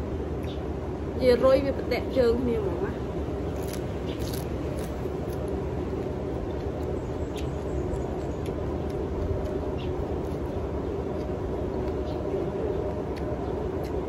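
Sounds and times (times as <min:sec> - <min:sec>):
faint hum: 0:00.0 - 0:14.0
low background rumble: 0:00.0 - 0:14.0
person chewing raw vegetables: 0:03.2 - 0:14.0.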